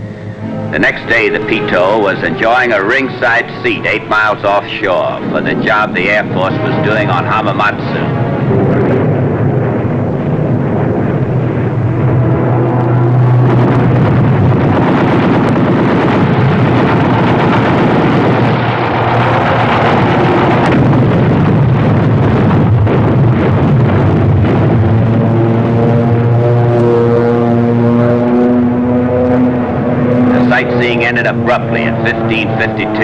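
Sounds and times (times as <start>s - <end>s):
aircraft engines humming: 0.0s - 33.0s
explosions: 4.0s - 27.7s.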